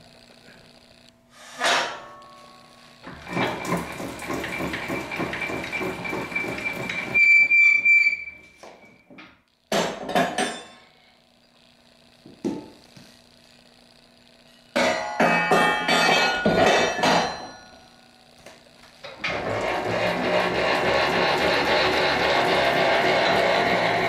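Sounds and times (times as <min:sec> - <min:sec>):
handwheel clattering with high whine: 0:03.0 - 0:08.3, 0:19.0 - 0:24.0.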